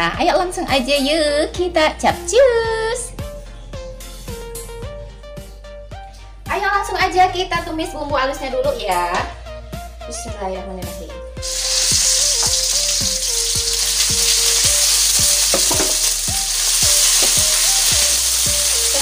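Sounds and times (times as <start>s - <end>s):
spice paste sizzling in oil: 11.4s - 19.0s.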